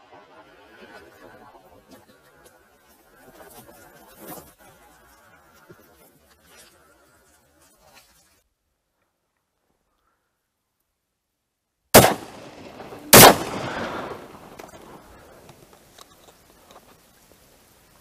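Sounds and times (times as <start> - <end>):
shotgun shots with echo: 12.0 - 15.0.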